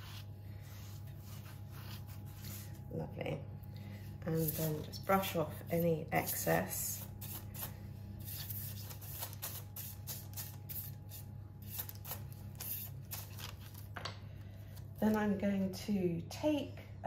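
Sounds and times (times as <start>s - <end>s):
pastry brush sweeping bread: 0.0s - 3.0s, 4.1s - 13.8s.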